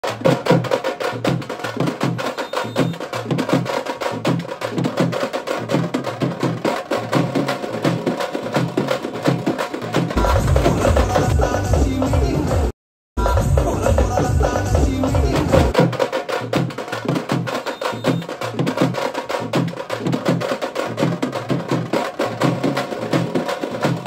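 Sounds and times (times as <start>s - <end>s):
drums played fast: 0.0s - 24.0s
music with heavy bass: 10.2s - 15.8s.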